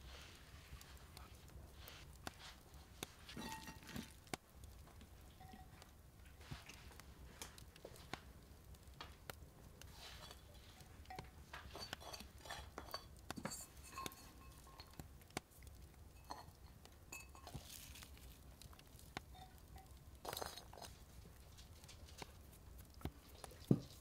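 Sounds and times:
ceramic bowls clinking: 3.3s - 4.1s, 10.0s - 15.0s, 16.2s - 18.3s, 19.3s - 21.0s.

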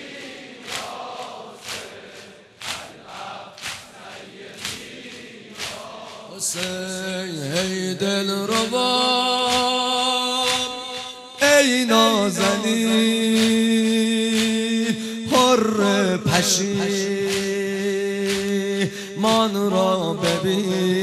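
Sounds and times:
chest beating in unison: 0.0s - 7.9s
man chanting a lament: 6.0s - 21.0s.

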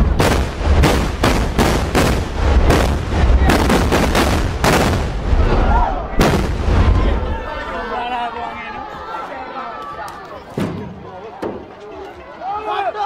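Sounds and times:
carbide cannon booms: 0.0s - 5.4s, 6.2s - 7.1s.

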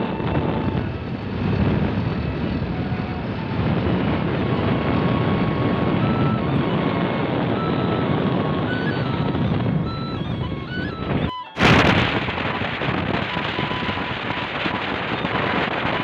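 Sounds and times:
tractor engine running: 0.0s - 16.0s.

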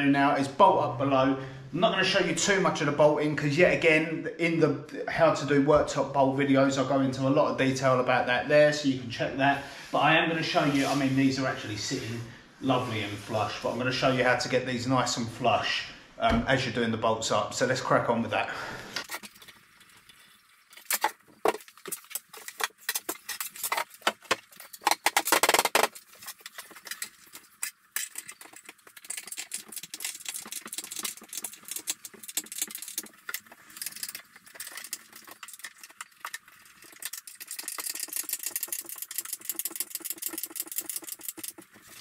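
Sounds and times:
scrape: 9.5s - 14.5s.

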